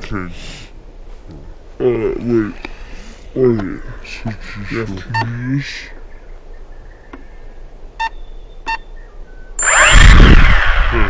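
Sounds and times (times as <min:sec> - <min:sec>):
short electronic beeps: 0:08.0 - 0:10.6
drone propellers whirring: 0:09.6 - 0:11.0.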